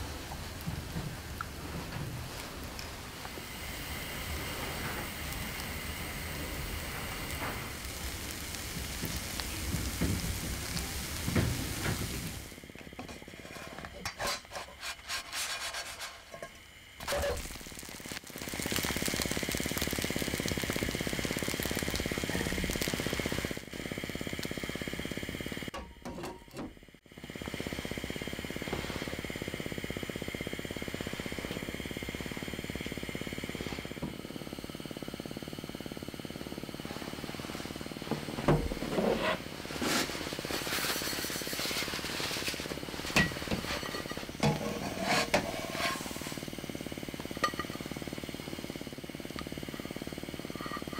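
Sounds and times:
electric hand mixer running: 0:17.0 - 0:25.7, 0:27.1 - 0:38.3.

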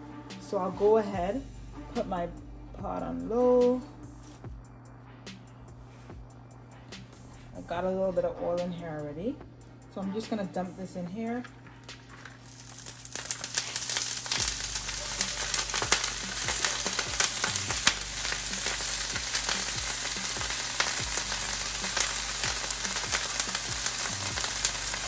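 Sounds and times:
oil popping and crackling: 0:11.6 - 0:25.0
vegetables sizzling in a frying pan: 0:12.1 - 0:25.0.

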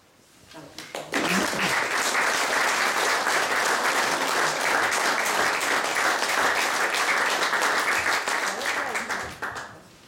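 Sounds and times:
audience applauding: 0:01.0 - 0:09.8.

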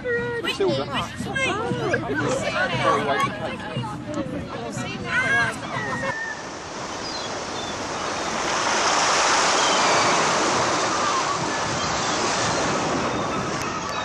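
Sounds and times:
surf washing onto beach: 0:05.1 - 0:14.0.

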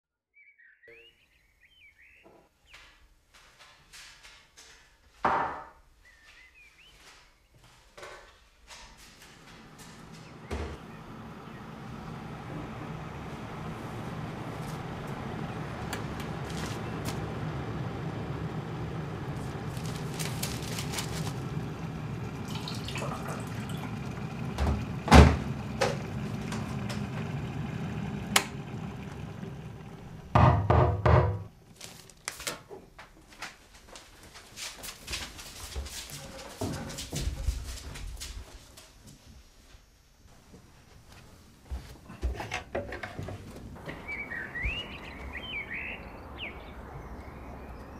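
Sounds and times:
footsteps on wooden floor: 0:02.2 - 0:05.6, 0:06.2 - 0:11.1, 0:32.9 - 0:39.3, 0:40.3 - 0:45.3
electric kettle rumbling hiss: 0:21.4 - 0:30.4
loud knocks: 0:30.3 - 0:31.5.

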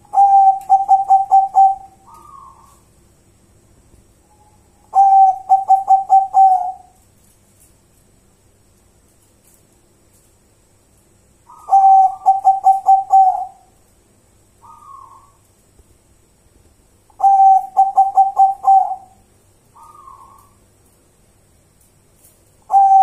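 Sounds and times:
dove cooing: 0:00.0 - 0:02.9, 0:04.9 - 0:07.0, 0:11.5 - 0:13.7, 0:14.6 - 0:15.4, 0:17.2 - 0:19.2, 0:19.8 - 0:20.6, 0:22.7 - 0:23.0.

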